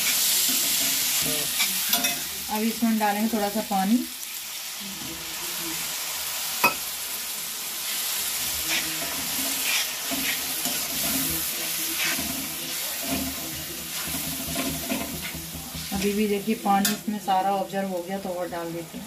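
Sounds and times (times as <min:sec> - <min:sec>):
ginger and garlic sizzling in oil: 0:00.0 - 0:19.0
steel spoon scraping pan: 0:08.5 - 0:17.1.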